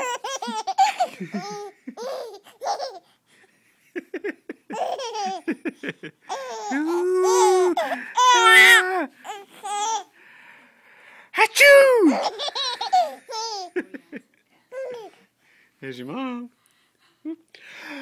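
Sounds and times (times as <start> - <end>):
baby laughing: 0.0 - 3.1, 4.6 - 10.1, 12.0 - 14.0, 14.7 - 15.2.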